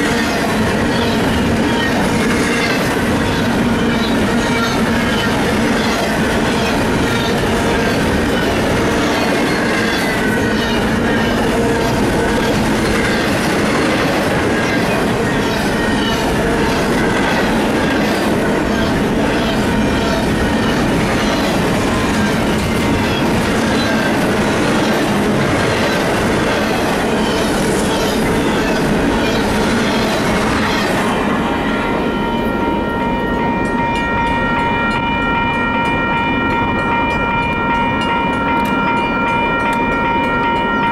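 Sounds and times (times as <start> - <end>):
steady high tone: 0.0 - 40.9.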